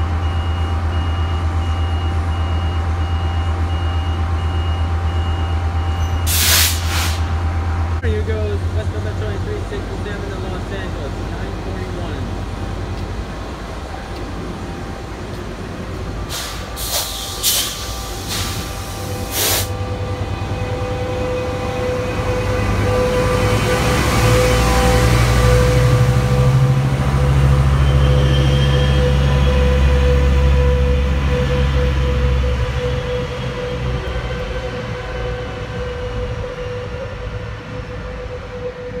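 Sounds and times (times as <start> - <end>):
diesel locomotive engine rumble: 0.0 - 39.0
train coaches rolling past: 0.0 - 39.0
air hiss bursts: 6.3 - 7.3, 16.3 - 19.8.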